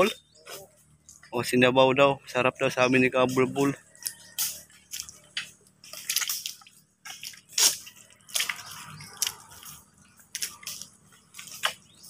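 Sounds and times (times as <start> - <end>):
mud squelching: 4.0 - 12.0.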